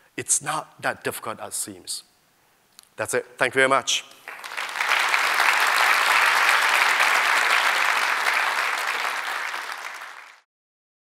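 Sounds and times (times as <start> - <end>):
audience applauding: 4.2 - 10.5.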